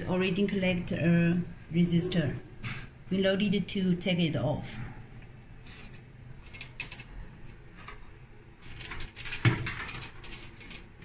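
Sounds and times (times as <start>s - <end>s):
hands handling wires: 5.7s - 11.0s.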